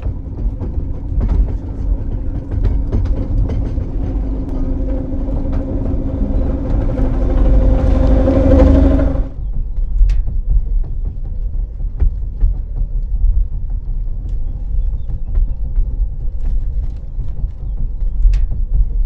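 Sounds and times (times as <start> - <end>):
electric train drive hum: 0.0 - 9.4
wheels clicking on rails: 0.0 - 9.4
low rumble: 0.0 - 19.0.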